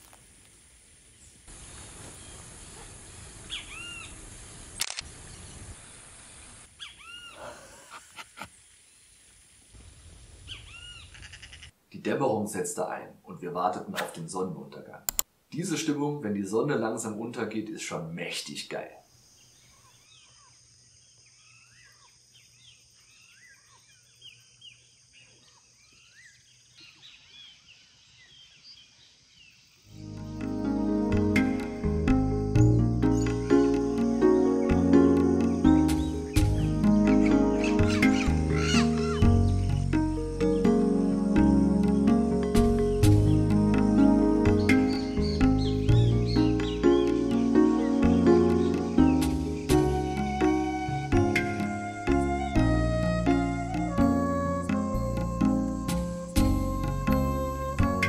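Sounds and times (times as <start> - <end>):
steady hiss: 0.0 - 19.7
steady high hiss: 0.0 - 19.8, 29.3 - 58.0
bird calling: 3.5 - 4.2, 6.8 - 8.4, 10.4 - 11.8, 35.6 - 40.8, 44.4 - 58.0
camera shutter clicks: 4.8 - 5.1.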